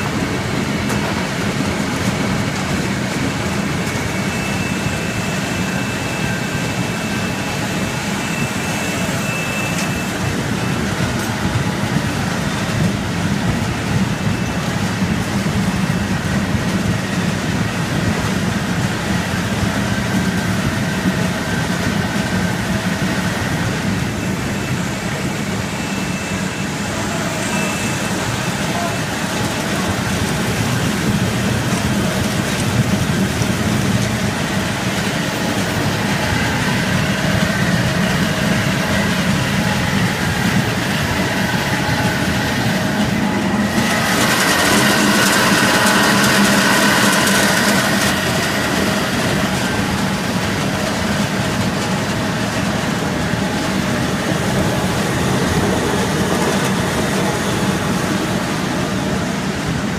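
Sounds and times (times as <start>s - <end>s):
machine rattling: 29.3s - 58.5s.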